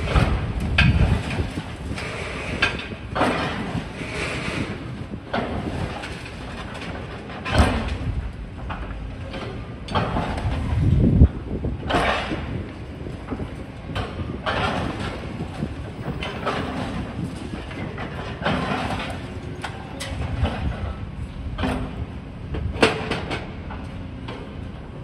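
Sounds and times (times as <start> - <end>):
metallic clanks and knocks: 0.1 - 3.8, 5.3 - 10.9, 11.8 - 22.0.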